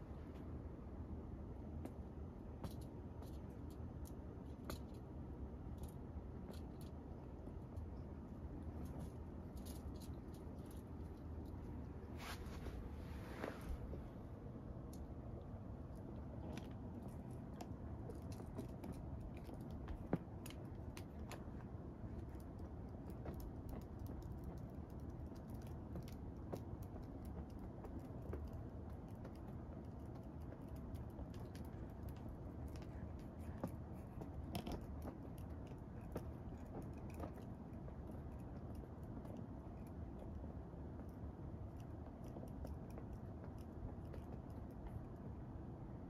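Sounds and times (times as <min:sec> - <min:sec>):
low room noise: 0:00.0 - 0:46.0.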